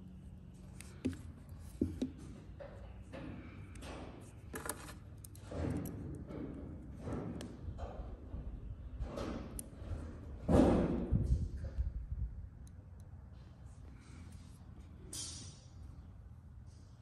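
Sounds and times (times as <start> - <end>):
soft handling noise: 0.5 - 2.9, 4.1 - 5.4.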